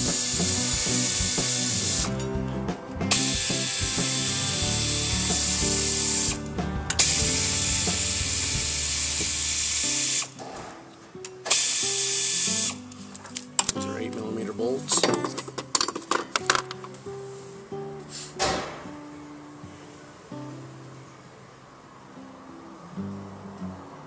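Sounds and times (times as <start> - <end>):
air ratchet spinning: 0.0 - 2.2, 3.1 - 6.4, 7.0 - 10.3.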